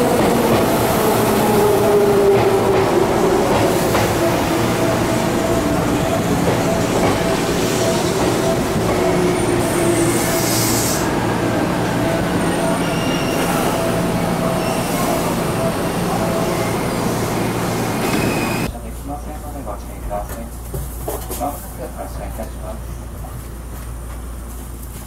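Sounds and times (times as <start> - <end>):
train wheels rumbling on rail: 0.0 - 18.7
wheel squeal: 18.0 - 18.7.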